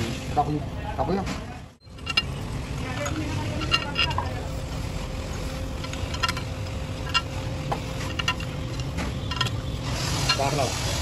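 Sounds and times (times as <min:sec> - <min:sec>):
metal tools clinking: 0:01.9 - 0:04.6, 0:05.8 - 0:09.6, 0:10.2 - 0:10.6.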